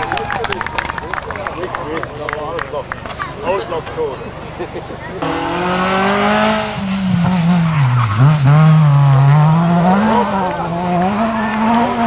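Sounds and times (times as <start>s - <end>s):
rally car engine revving past: 5.2s - 12.0s.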